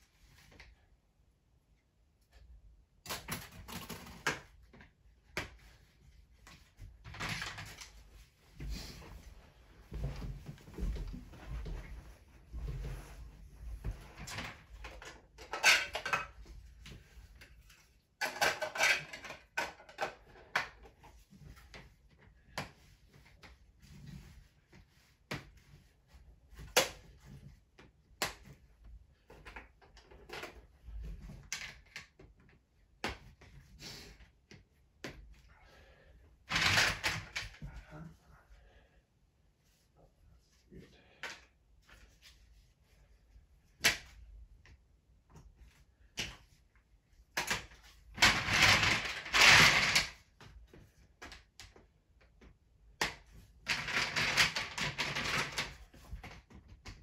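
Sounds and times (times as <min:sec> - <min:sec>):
plastic train track clattering: 0:14.3 - 0:16.4, 0:18.2 - 0:20.8, 0:47.4 - 0:50.2, 0:53.7 - 0:55.7.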